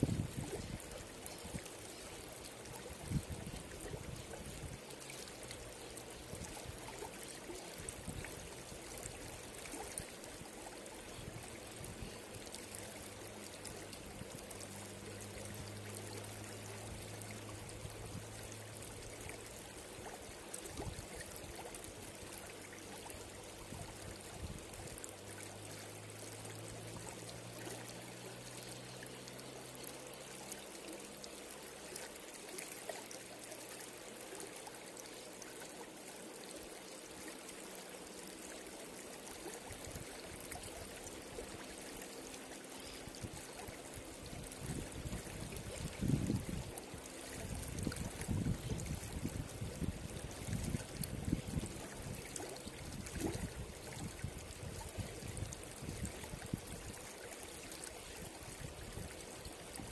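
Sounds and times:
water splashes and trickles: 0.0 - 59.9.

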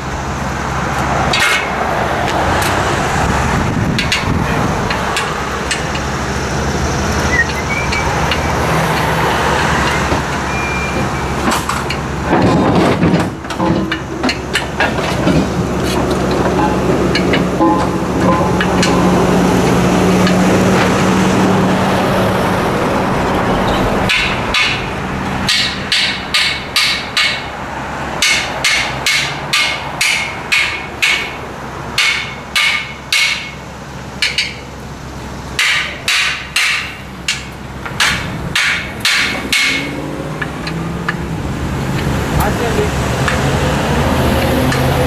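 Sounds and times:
hammer striking metal ring: 24.0 - 24.9, 25.5 - 27.5, 28.2 - 31.4, 32.0 - 33.6, 35.6 - 40.0.

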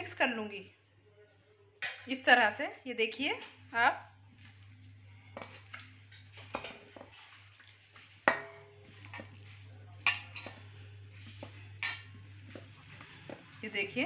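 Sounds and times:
knocks and clinks in steel bowl: 8.3 - 9.4, 10.0 - 13.5.

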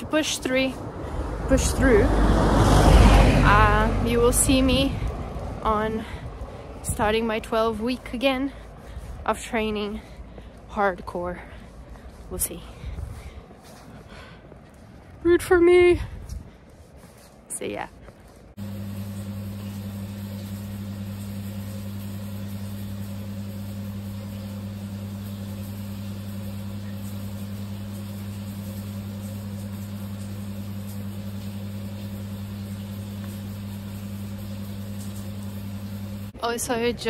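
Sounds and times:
low machine hum: 18.6 - 37.0.

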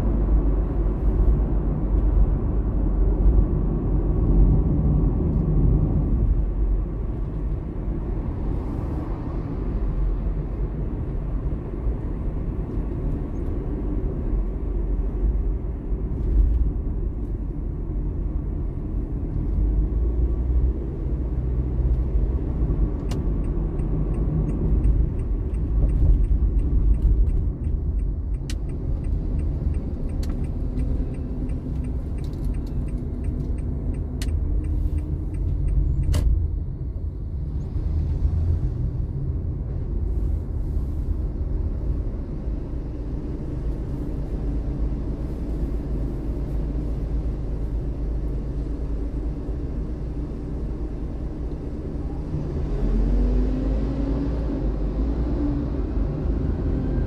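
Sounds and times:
car engine and road noise: 0.0 - 57.0
turn signal ticking: 21.8 - 36.6.

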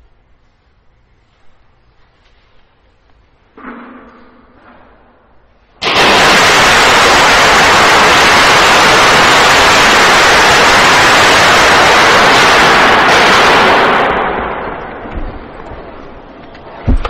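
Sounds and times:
loud static hiss: 5.0 - 17.0.

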